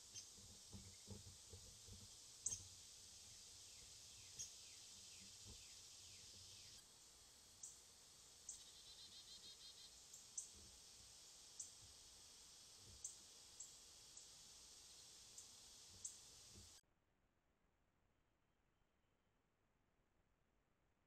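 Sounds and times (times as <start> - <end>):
distant bird calls: 0.0 - 6.8, 8.4 - 10.7.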